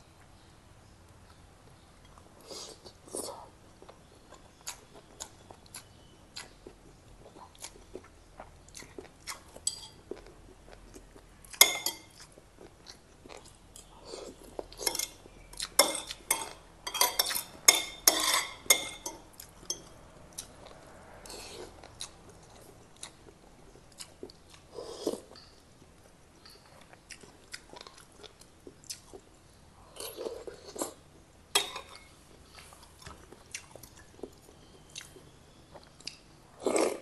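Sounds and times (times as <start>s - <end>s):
cutlery clinking on ceramic bowl: 9.6s - 10.0s, 11.6s - 12.2s, 14.8s - 15.2s, 15.8s - 20.0s, 25.3s - 25.6s
chewing and mouth clicks: 19.4s - 29.3s.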